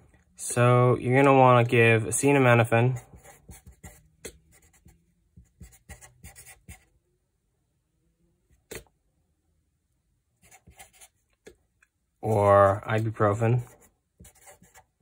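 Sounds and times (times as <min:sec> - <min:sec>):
marker writing on paper: 0:02.9 - 0:06.9, 0:10.4 - 0:11.6, 0:12.3 - 0:15.0.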